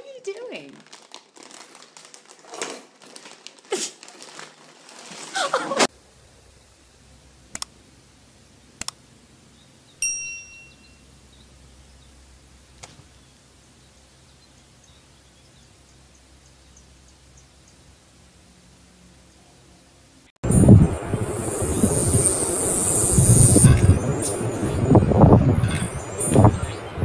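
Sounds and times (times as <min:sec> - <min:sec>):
plastic bag crinkling: 0:00.0 - 0:05.9
bright ding: 0:10.0 - 0:11.0.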